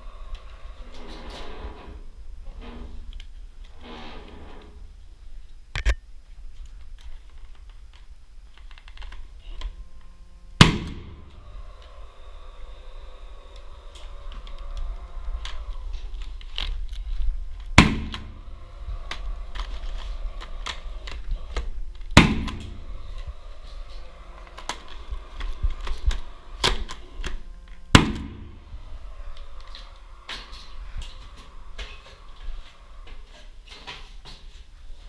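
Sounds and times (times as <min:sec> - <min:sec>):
steady low hum: 0:00.0 - 0:35.0
loud sharp knocks: 0:10.6 - 0:11.3, 0:17.8 - 0:18.4, 0:22.2 - 0:22.8.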